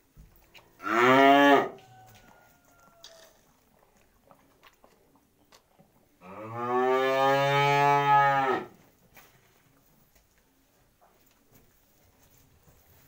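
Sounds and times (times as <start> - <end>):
cow mooing: 6.2 - 8.7.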